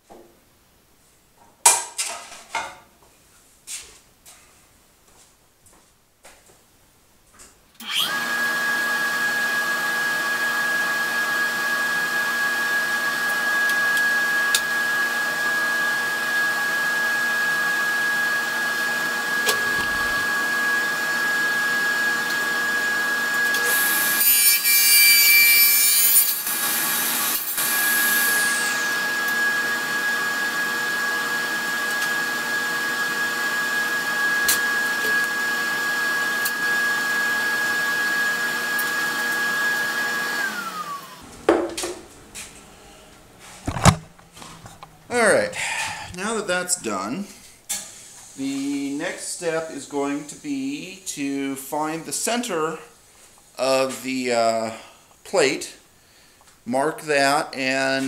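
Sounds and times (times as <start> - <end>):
table saw motor whining: 7.8 - 41.4
saw blade cutting plastic: 23.5 - 29.0.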